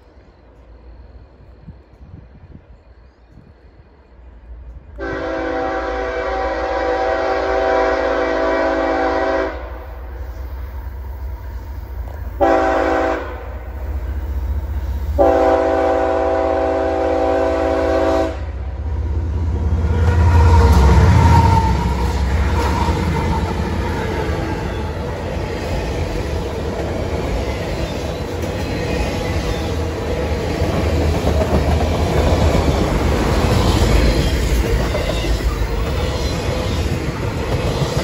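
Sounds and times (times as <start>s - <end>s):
locomotive engines and wheels rumbling: 0.0s - 38.0s
locomotive air horn blasts: 5.0s - 9.8s, 12.4s - 13.6s, 15.2s - 18.7s.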